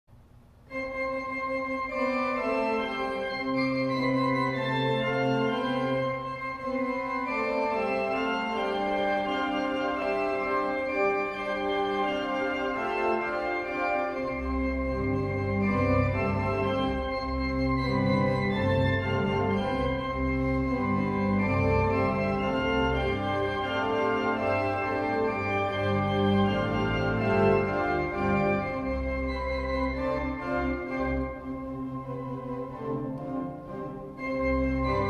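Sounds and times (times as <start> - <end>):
church organ playing chords: 0.7 - 35.0.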